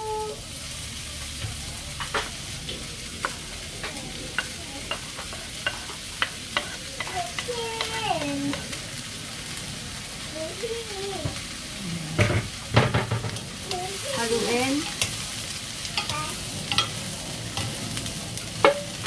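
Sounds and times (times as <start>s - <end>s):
food sizzling in a frying pan: 0.0s - 19.0s
wooden spatula clicking on pan: 1.5s - 8.8s.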